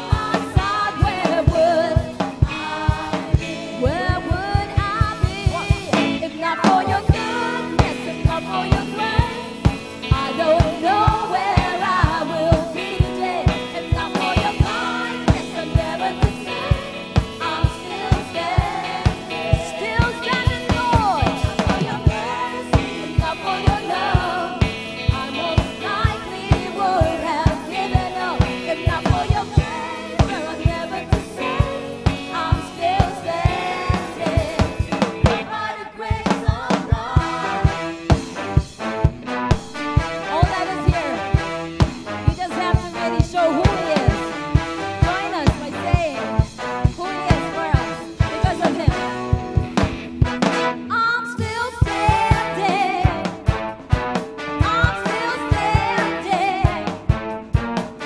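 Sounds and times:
vocalists singing together: 0.0 - 37.9, 51.8 - 53.3, 54.7 - 57.0
bass guitar: 0.0 - 58.0
drum kit beat: 0.0 - 58.0
electric guitar: 0.0 - 58.0.

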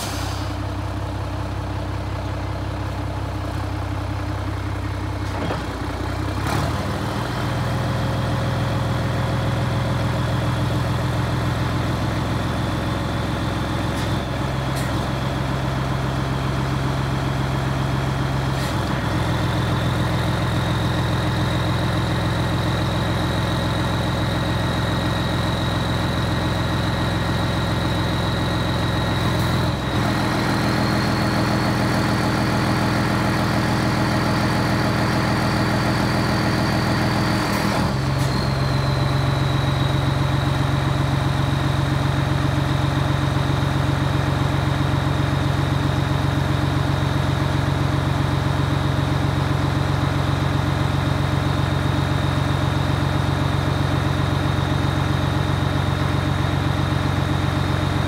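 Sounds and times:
diesel truck engine running: 0.0 - 58.0.

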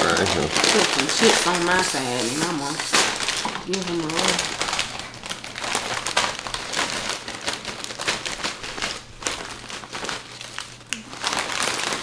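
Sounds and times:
chip bag crinkling: 0.0 - 12.0.

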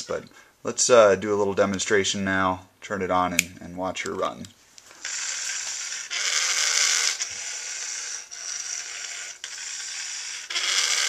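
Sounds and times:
small robot motors running: 5.0 - 11.0.

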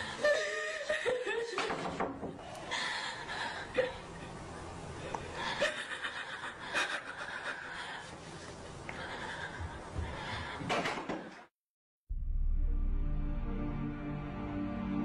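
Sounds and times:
girl laughing: 0.2 - 1.7.

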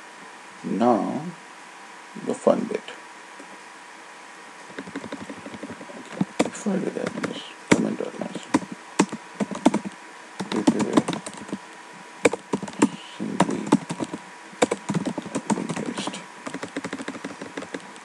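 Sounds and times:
computer keyboard typing: 4.7 - 11.6, 12.3 - 18.0.

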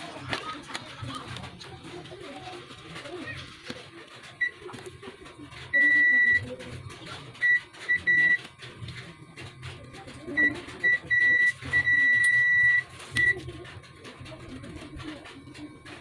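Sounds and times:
multimeter continuity beeps: 4.2 - 6.6, 7.3 - 8.5, 10.1 - 13.6.

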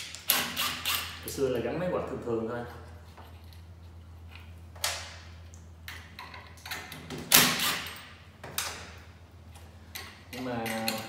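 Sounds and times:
cordless drill driving screws: 0.3 - 1.2.

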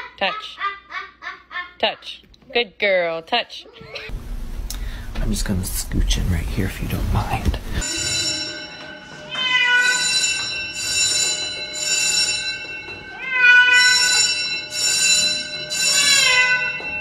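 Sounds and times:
cat meowing loudly: 9.3 - 10.1, 13.2 - 14.2, 16.0 - 16.8.

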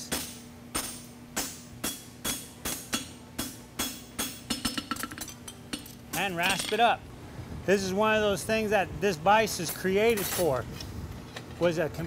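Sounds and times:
hammer striking horseshoe on anvil: 0.0 - 6.8.

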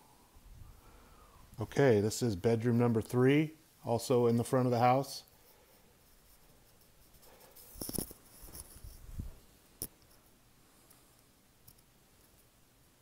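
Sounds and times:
faint knocks and rustles: 5.4 - 12.6.

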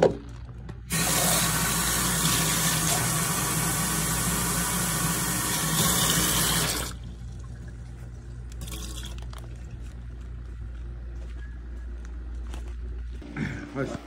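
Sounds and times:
low steady hum: 0.0 - 14.0
tap water running into cup: 0.9 - 7.8, 8.5 - 9.5.

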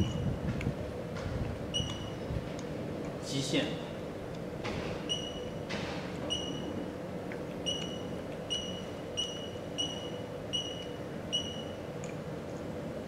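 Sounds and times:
steady low hum: 0.0 - 13.0
short electronic beeps: 7.6 - 11.8.

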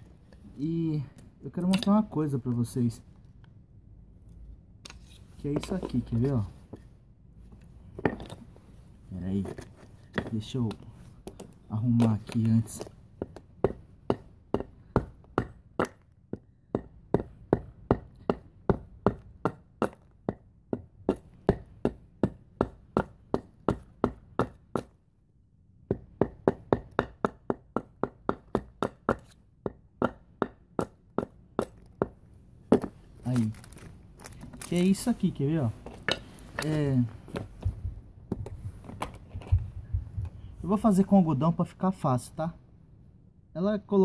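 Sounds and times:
hatchet chopping wood: 10.1 - 24.9, 25.9 - 32.9.

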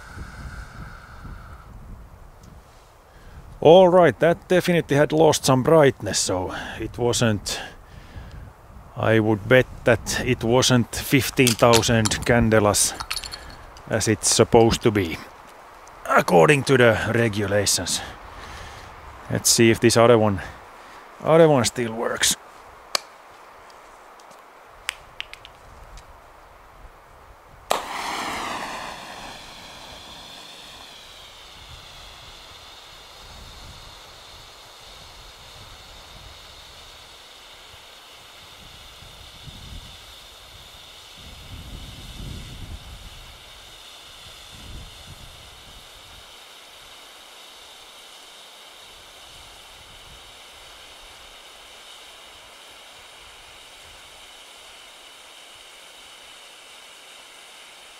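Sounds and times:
flare hissing: 0.0 - 3.0, 27.6 - 47.2
hand flare burning with hiss: 0.0 - 3.7, 6.2 - 57.9
sharp clicks: 24.8 - 25.6
flare igniting with a crack: 27.6 - 33.2.

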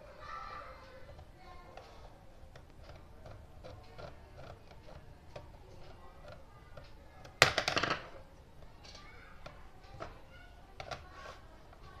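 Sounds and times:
hard object clattering on table: 7.3 - 8.2.

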